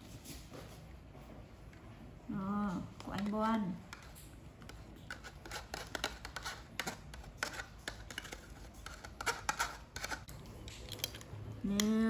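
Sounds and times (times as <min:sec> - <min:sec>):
plastic cup crinkling: 0:03.0 - 0:11.9.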